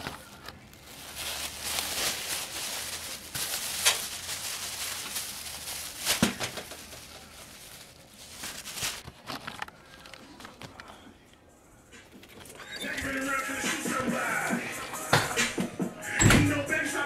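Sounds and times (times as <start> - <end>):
plastic bag rustling: 0.0 - 10.9.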